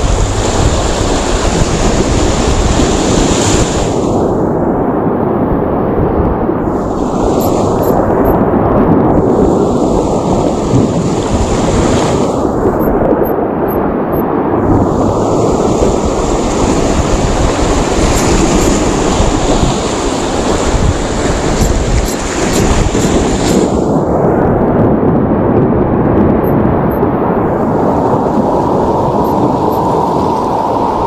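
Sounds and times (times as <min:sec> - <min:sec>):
surf breaking over rocks: 0:00.0 - 0:04.3, 0:06.6 - 0:13.3, 0:14.6 - 0:24.8
wind buffeting microphone: 0:00.0 - 0:31.0.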